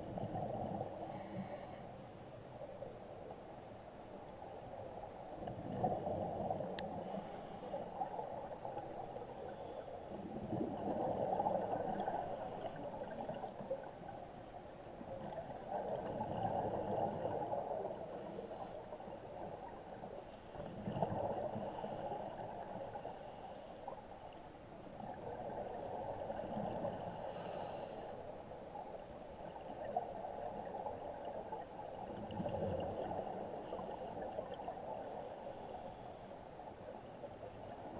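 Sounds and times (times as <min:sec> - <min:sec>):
diver breathing through regulator: 0:01.0 - 0:02.0, 0:07.0 - 0:07.9, 0:27.1 - 0:28.2
exhaled bubbles gurgling: 0:05.3 - 0:07.0, 0:10.1 - 0:13.9, 0:15.0 - 0:18.1, 0:20.6 - 0:22.7, 0:29.5 - 0:35.2.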